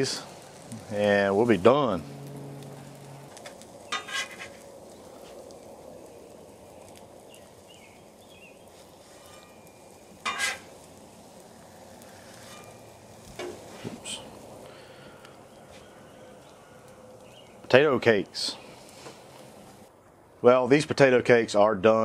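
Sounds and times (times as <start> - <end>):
potato cakes sizzling in grease: 0.0 - 19.9
metal spatula scraping griddle: 2.7 - 4.6, 9.0 - 10.9, 12.1 - 13.9.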